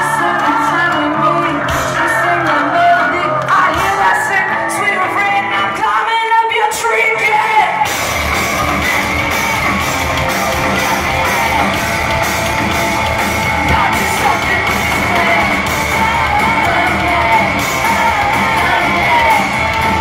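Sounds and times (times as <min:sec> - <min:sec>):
person singing: 0:00.0 - 0:20.0
crowd yelling and whooping: 0:07.1 - 0:20.0
live rock band playing: 0:07.1 - 0:20.0.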